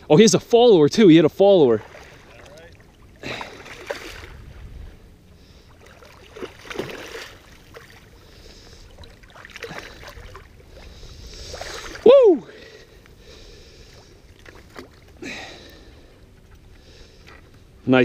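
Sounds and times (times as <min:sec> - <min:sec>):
low steady rumble: 0:00.0 - 0:18.0
fish splashing at water surface: 0:05.7 - 0:10.6.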